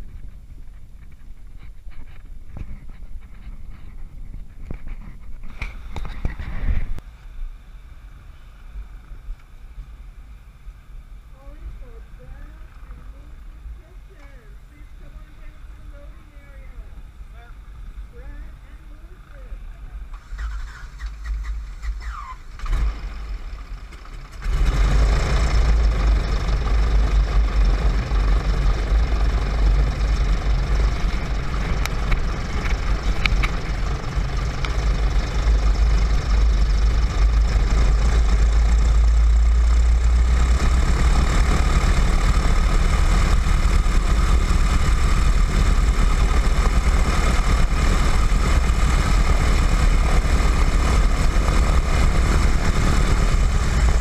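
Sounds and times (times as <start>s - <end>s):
radial engine starting and idling: 11.4s - 54.0s.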